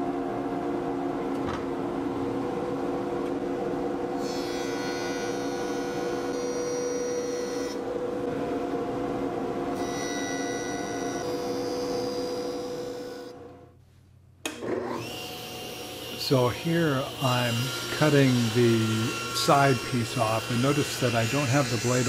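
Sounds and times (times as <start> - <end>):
jointer machine hum: 14.4 - 22.0.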